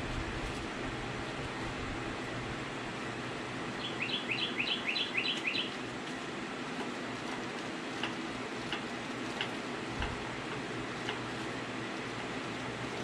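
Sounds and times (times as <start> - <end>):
steady background hum: 0.0 - 13.0
bird chirping: 3.8 - 5.8.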